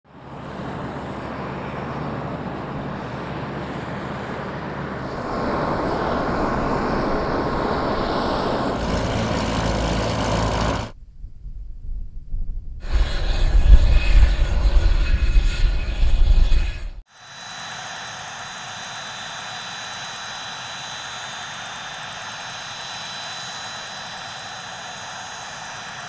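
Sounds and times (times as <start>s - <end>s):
propeller aircraft engines running: 0.1s - 11.0s, 16.8s - 26.0s.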